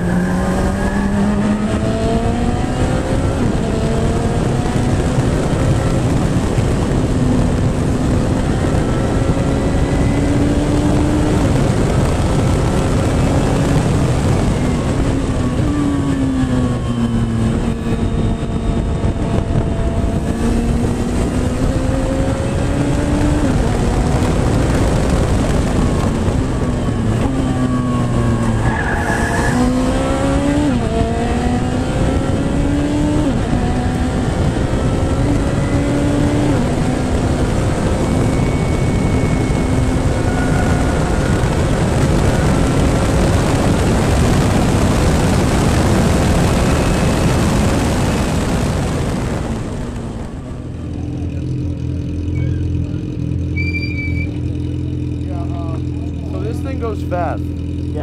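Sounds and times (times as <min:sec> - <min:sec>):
heavy rush of noise: 0:00.0 - 0:54.6
race car engine through gear changes: 0:00.0 - 0:58.0
brief high squeal: 0:52.3 - 0:52.7, 0:53.5 - 0:54.5.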